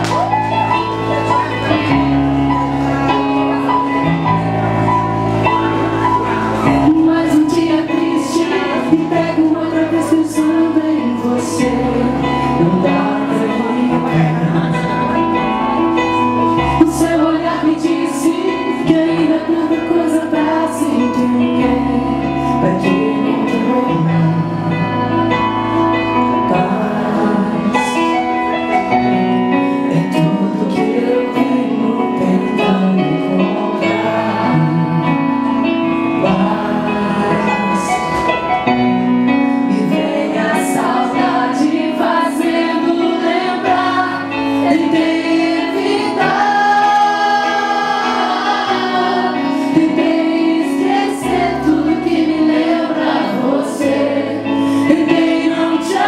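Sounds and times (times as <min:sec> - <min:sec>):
woman singing a ballad: 0:06.6 - 0:38.8.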